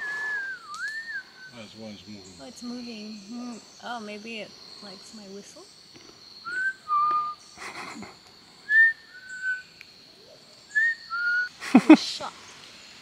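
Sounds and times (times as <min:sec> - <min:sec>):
person whistling two-note call: 0:00.0 - 0:01.3, 0:06.5 - 0:07.4.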